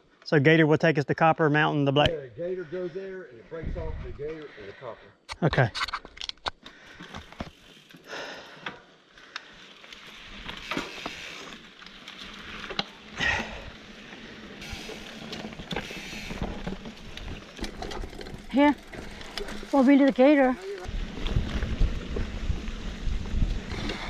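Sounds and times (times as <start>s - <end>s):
bike tyres on dirt: 6.6s - 24.0s
bike drivetrain and frame rattling: 6.7s - 24.0s.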